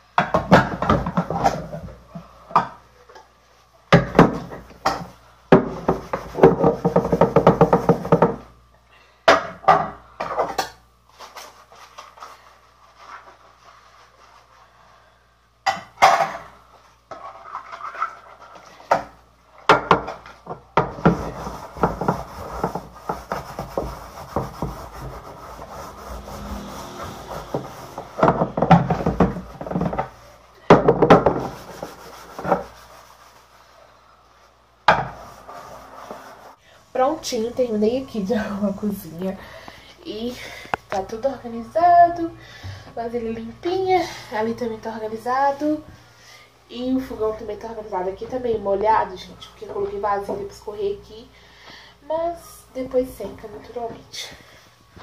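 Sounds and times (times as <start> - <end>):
sponge scrubbing pots: 20.8 - 34.0.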